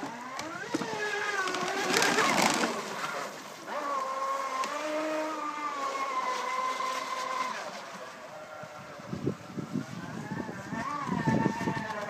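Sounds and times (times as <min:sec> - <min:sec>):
electric motor whining: 0:08.6 - 0:12.0.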